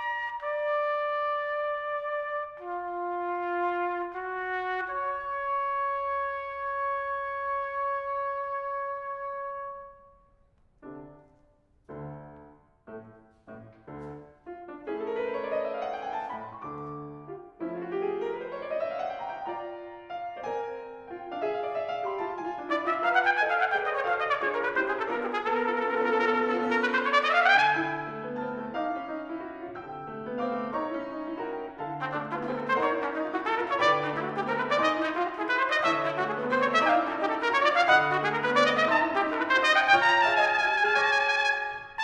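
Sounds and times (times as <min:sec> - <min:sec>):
trumpet: 0:00.0 - 0:10.4, 0:21.8 - 0:29.4, 0:31.7 - 0:42.0
grand piano: 0:00.0 - 0:42.0.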